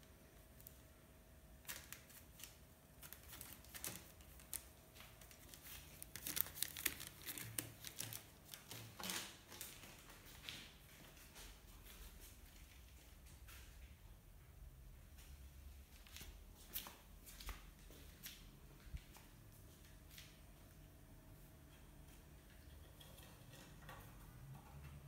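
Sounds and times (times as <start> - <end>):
paper rustling: 1.6 - 11.4.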